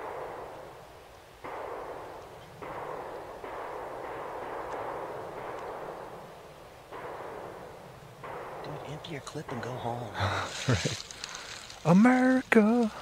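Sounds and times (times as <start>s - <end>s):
distant echoing gunshots: 0.0s - 10.2s.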